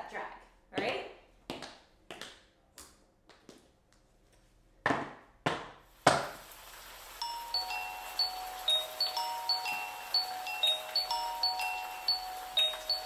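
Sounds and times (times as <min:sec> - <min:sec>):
tap shoes on wooden floor: 0:00.8 - 0:03.7
music: 0:07.2 - 0:13.0.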